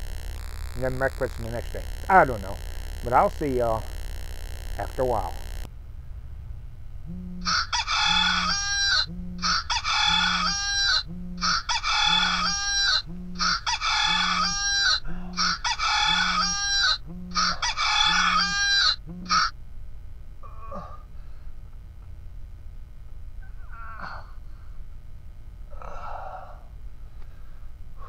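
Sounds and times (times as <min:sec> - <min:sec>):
low pulsing tone: 0:00.0 - 0:05.8
rooster crowing: 0:07.4 - 0:19.5.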